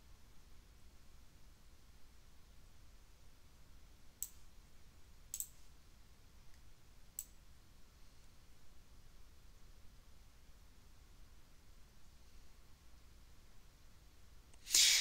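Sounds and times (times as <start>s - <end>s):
room hiss: 0.0s - 15.0s
computer mouse clicks: 4.2s - 4.4s, 5.3s - 5.6s.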